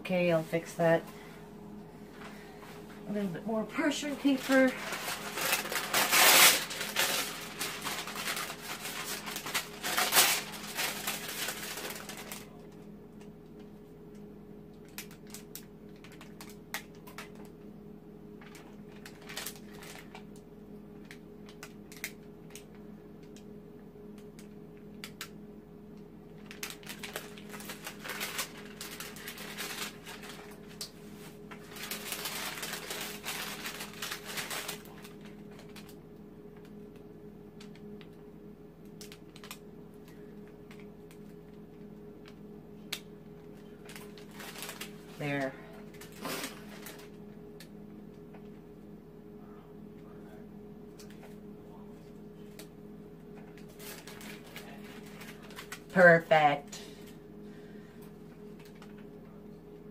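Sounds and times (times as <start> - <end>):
steady low hum: 0.0 - 59.9
paper crinkling and rustling: 2.2 - 12.8, 14.8 - 17.6, 18.4 - 20.4, 26.3 - 36.0, 39.0 - 41.4, 42.2 - 47.2, 53.4 - 57.2, 58.4 - 59.1.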